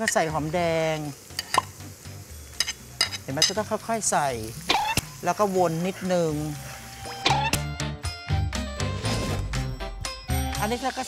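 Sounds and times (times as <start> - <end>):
background music with bass line: 7.0 - 11.0.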